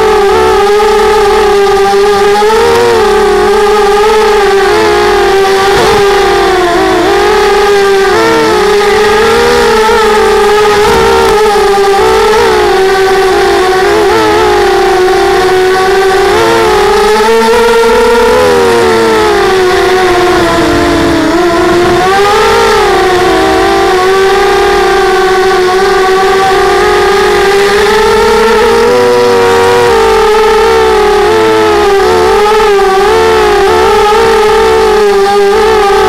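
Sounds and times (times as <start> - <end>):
drone motors buzzing whine: 0.0 - 36.0.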